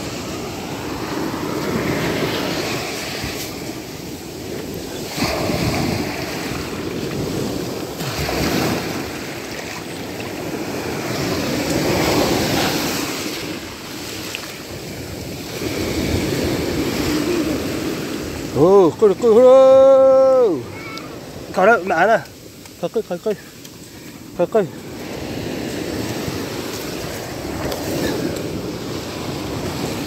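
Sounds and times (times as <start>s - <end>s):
surf washing over sand: 0.0s - 30.0s.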